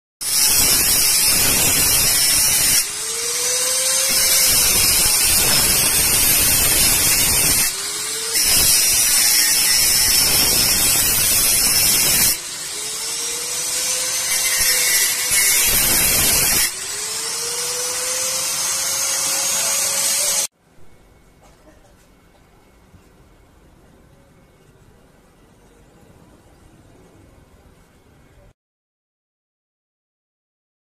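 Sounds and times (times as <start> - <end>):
angle grinder cutting steel: 0.2 - 20.5.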